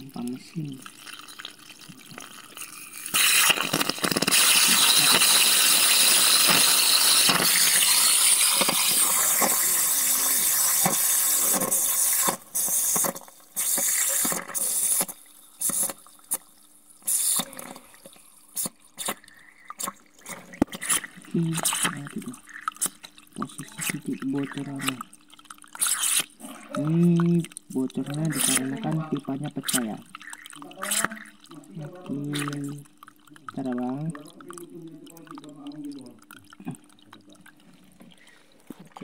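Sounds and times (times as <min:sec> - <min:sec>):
water spraying from pipe: 0:03.0 - 0:16.4, 0:17.0 - 0:17.6, 0:25.8 - 0:26.3, 0:27.8 - 0:28.6.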